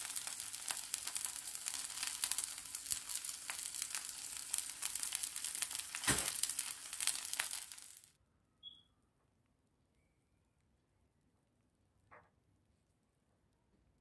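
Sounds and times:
egg sizzling in hot oil: 0:00.0 - 0:08.1.

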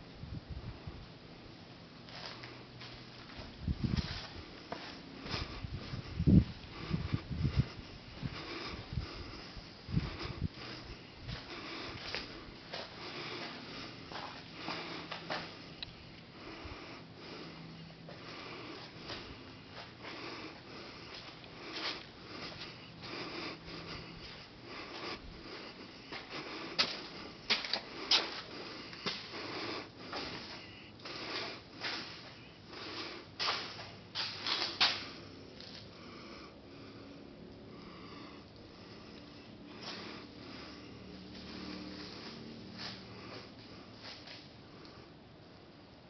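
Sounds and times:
footsteps on concrete: 0:02.1 - 0:06.5, 0:11.3 - 0:15.6, 0:26.1 - 0:32.3.

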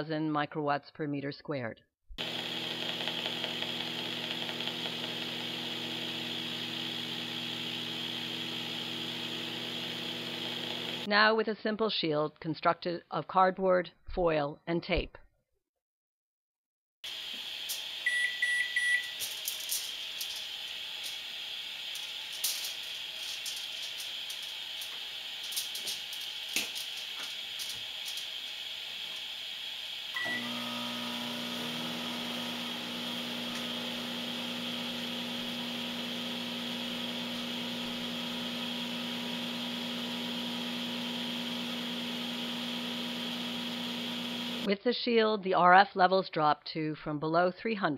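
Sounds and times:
microwave oven humming: 0:02.2 - 0:11.1, 0:29.5 - 0:44.7
microwave keypad beeping: 0:18.0 - 0:19.2, 0:30.2 - 0:30.6.

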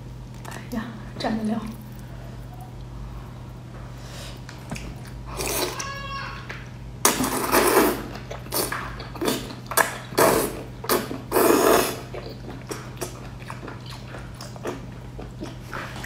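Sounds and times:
person slurping noodles: 0:07.0 - 0:13.2.

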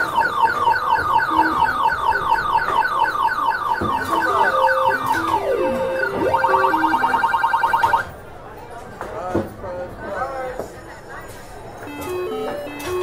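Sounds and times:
arcade machine electronic beeps: 0:00.0 - 0:08.0, 0:11.8 - 0:13.0
falling electronic tone: 0:04.0 - 0:08.0
short tunes of lower beeps: 0:04.0 - 0:08.0.

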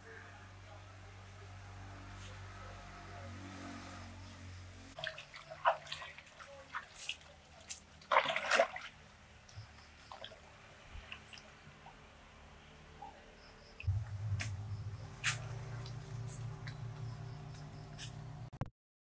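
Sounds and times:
water splashing and dripping: 0:04.9 - 0:12.0, 0:13.8 - 0:18.3
low steady hum: 0:07.4 - 0:18.5.

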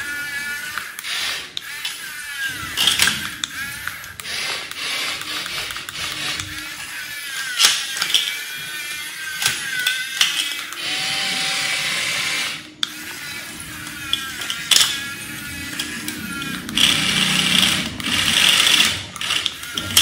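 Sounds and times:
small electric motors whirring: 0:00.0 - 0:20.0
sharp plastic clicks: 0:00.6 - 0:08.4, 0:12.7 - 0:20.0.

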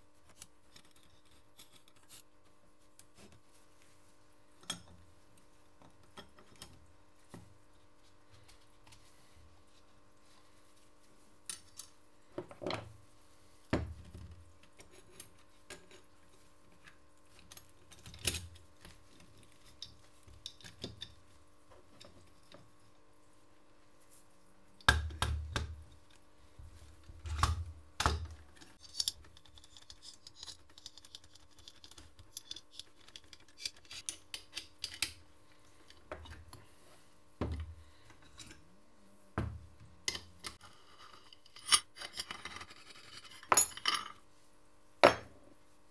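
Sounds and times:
faint steady hum: 0:00.0 - 0:45.9
metal parts clicking and clinking: 0:28.7 - 0:35.2.

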